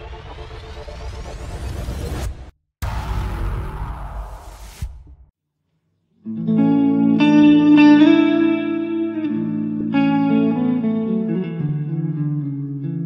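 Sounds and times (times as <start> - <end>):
instrumental music with held chords: 6.2 - 13.0.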